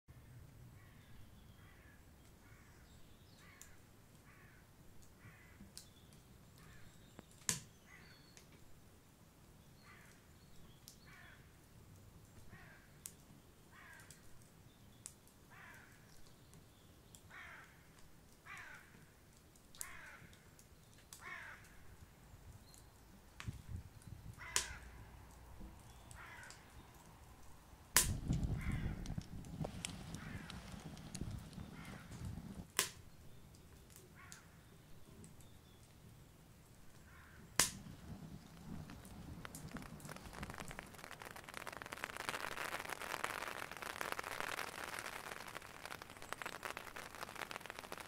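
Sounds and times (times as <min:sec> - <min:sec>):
sharp clicks: 0:28.0 - 0:33.0, 0:37.6 - 0:48.0
bird calls falling in pitch: 0:28.5 - 0:32.4, 0:37.1 - 0:48.0.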